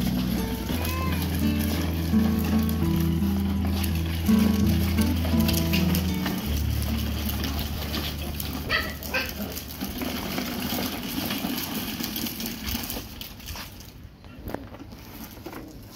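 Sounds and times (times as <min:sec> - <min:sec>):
plastic wheels rolling on stone: 0:00.0 - 0:15.9
short high-pitched cries: 0:00.5 - 0:01.7.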